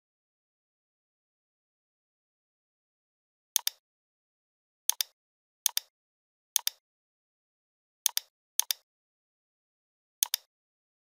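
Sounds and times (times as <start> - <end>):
computer mouse clicks: 3.6 - 3.8, 4.9 - 5.9, 6.6 - 6.8, 8.1 - 8.8, 10.2 - 10.5.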